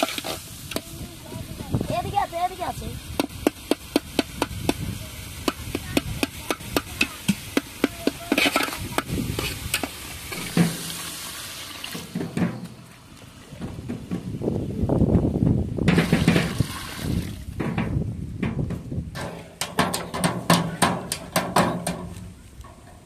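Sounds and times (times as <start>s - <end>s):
low sizzle: 0.0s - 21.3s
metal spatula scraping a wok: 8.2s - 10.9s.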